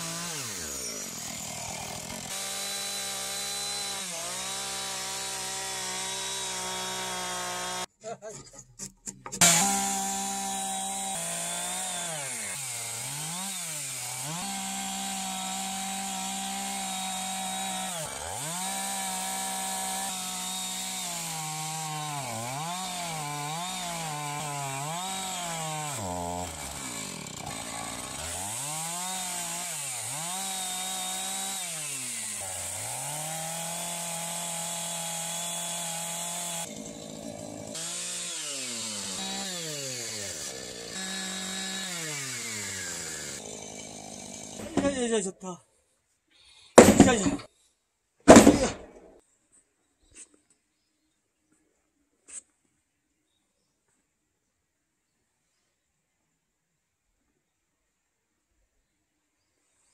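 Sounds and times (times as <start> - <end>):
chainsaw cutting into log: 0.0 - 7.9, 9.3 - 45.2, 46.8 - 47.5, 48.3 - 49.1.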